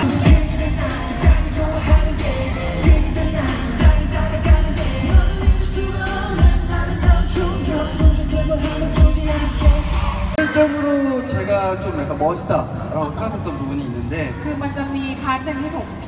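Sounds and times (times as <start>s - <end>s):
dance track with singing voice: 0.0s - 10.4s
heavy kick drum beat: 0.0s - 10.4s.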